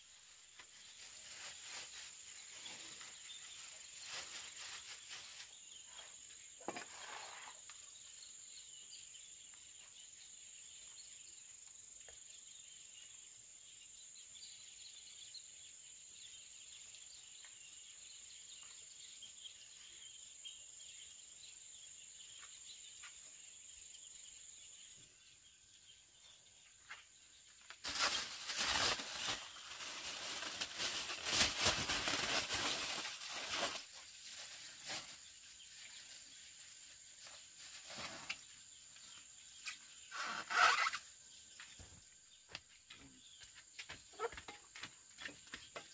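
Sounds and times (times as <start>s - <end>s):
insect trilling: 40.0s - 41.2s.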